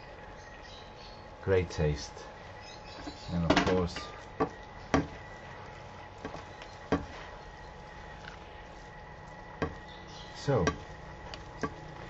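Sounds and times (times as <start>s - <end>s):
spatulas knocking against frying pan: 3.5s - 5.2s, 6.2s - 7.2s, 9.6s - 9.9s, 10.6s - 10.9s, 11.6s - 11.9s.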